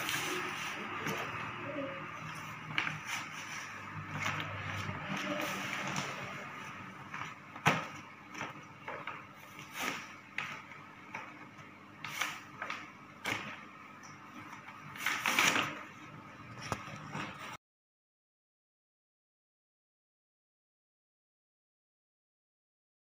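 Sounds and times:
cardboard and plastic rustling: 0.0 - 11.4, 14.4 - 17.6.

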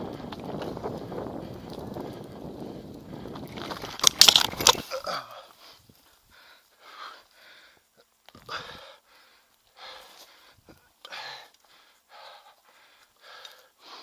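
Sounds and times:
rolling trail noise: 0.0 - 14.0
person gasping for breath: 4.7 - 7.8, 8.4 - 14.0.

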